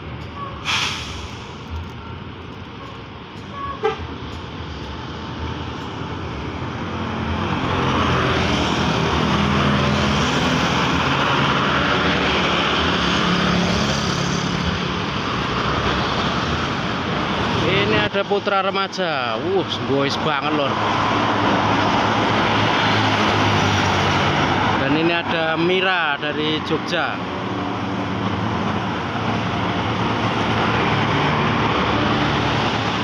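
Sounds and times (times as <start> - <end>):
cars and motorbikes passing: 1.5 - 33.0
vehicle horn toot: 3.5 - 4.1.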